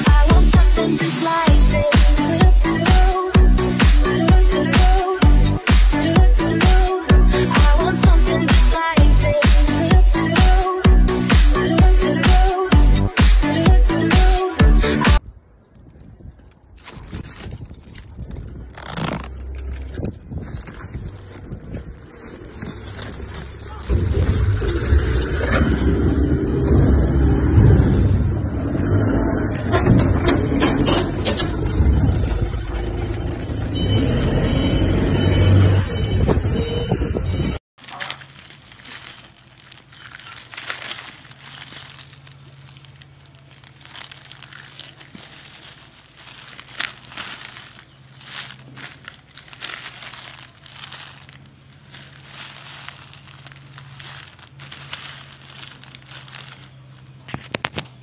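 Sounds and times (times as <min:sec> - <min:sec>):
vehicle engine rumbling: 0:00.0 - 0:58.0
sharp crackles: 0:15.8 - 0:25.8, 0:37.8 - 0:58.0
low hum: 0:18.8 - 0:34.8.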